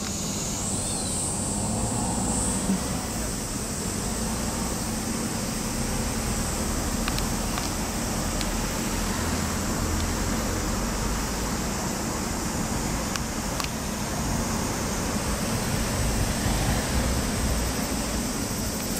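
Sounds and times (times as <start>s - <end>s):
street traffic rumble: 0.0s - 18.9s.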